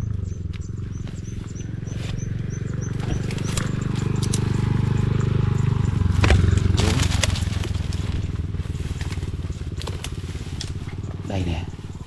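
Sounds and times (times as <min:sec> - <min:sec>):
small engine running: 0:00.0 - 0:12.0
sharp clicks: 0:02.8 - 0:08.0.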